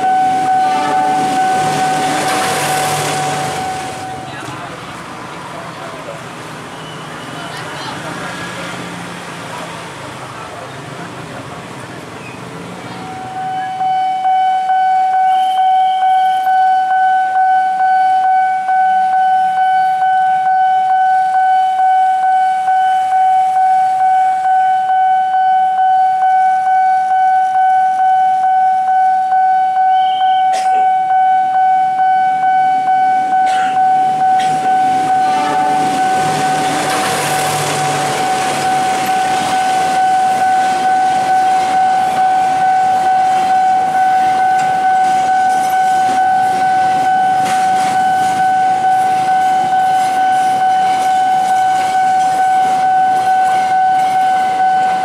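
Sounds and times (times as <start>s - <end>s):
level crossing warning alarm: 0.0s - 4.9s, 13.0s - 55.0s
freight train passing: 0.0s - 17.3s, 31.1s - 55.0s.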